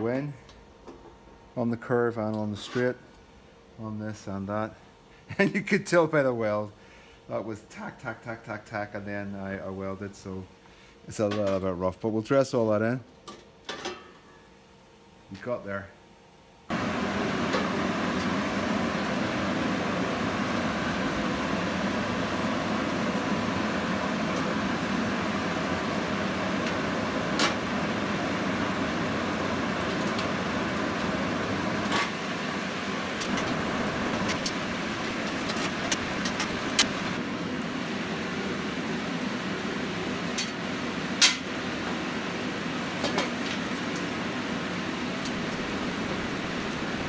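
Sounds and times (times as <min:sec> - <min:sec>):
workshop machine running: 0:16.7 - 0:47.0.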